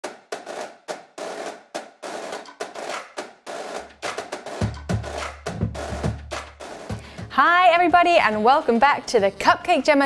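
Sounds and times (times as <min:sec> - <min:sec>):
drum and snare hits: 0:00.0 - 0:08.5
kick drum thumps: 0:03.9 - 0:07.4.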